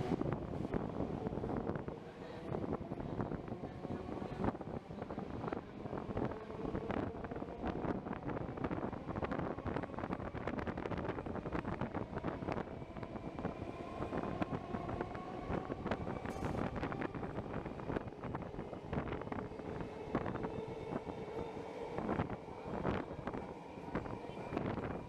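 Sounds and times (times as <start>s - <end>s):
faint train whine: 0.0s - 25.0s
wind buffeting microphone: 0.0s - 25.0s
train wheels clicking on rails: 14.1s - 19.6s.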